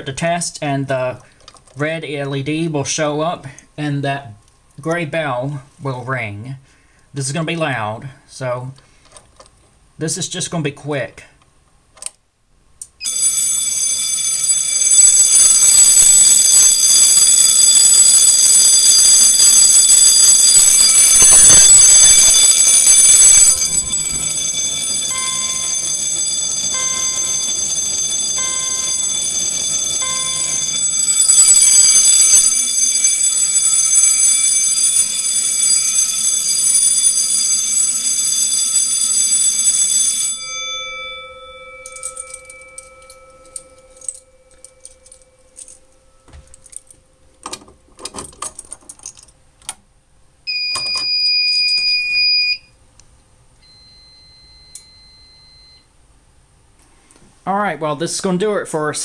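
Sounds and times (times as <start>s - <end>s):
fire alarm bell ringing: 13.0s - 47.6s, 50.5s - 52.7s, 53.6s - 55.9s
steady electronic beep: 20.0s - 24.5s
short beeps: 50.5s - 52.7s, 53.6s - 55.9s.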